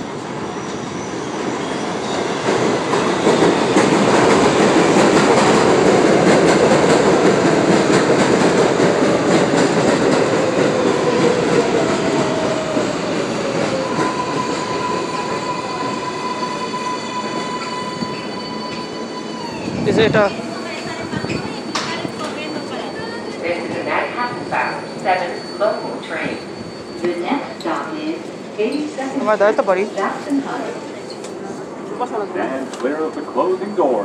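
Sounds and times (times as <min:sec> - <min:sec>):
train wheels rumbling on rails: 0:00.0 - 0:32.0.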